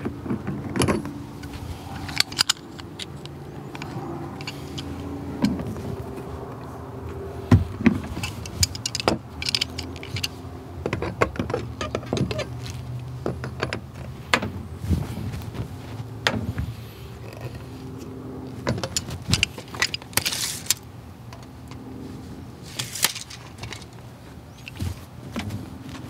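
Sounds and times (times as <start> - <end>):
steady low hum: 0.0 - 26.0
pliers clinking against pipe fittings: 0.8 - 5.9, 8.0 - 10.4, 18.7 - 21.8.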